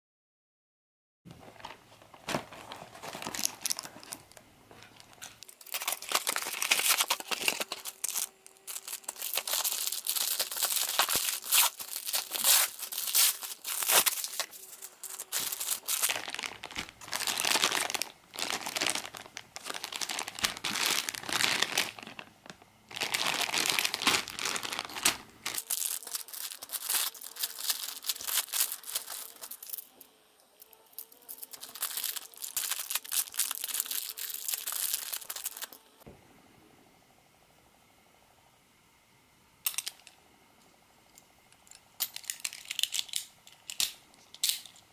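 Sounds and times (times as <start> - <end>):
plastic bags crinkling and tearing: 1.4 - 30.0, 30.7 - 35.8.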